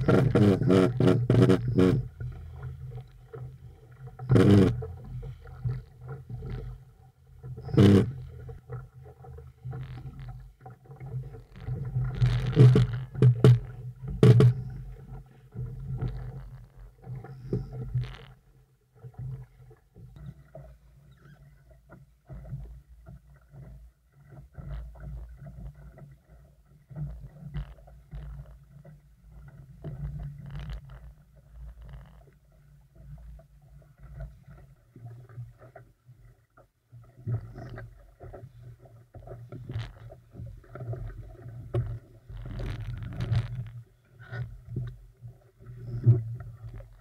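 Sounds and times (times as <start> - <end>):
water rushing along hull: 0.0 - 47.0.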